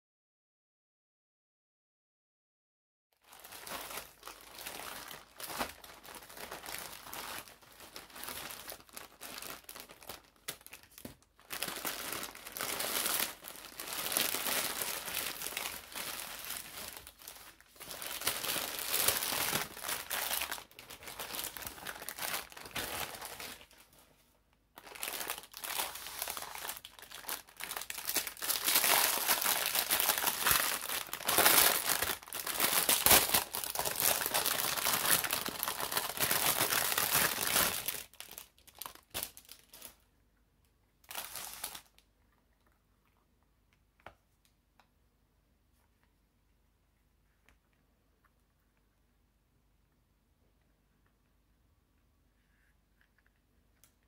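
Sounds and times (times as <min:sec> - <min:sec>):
plastic packaging crinkling: 0:03.2 - 0:24.0, 0:24.8 - 0:40.0, 0:41.0 - 0:42.1.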